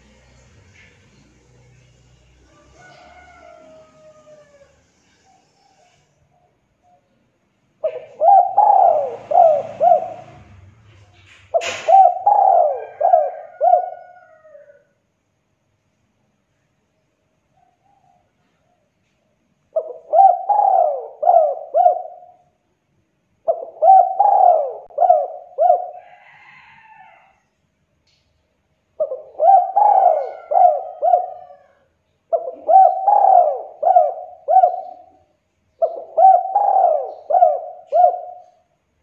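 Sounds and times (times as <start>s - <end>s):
dove cooing: 7.8s - 10.8s, 11.5s - 14.9s, 19.7s - 22.6s, 23.4s - 27.2s, 29.0s - 38.8s.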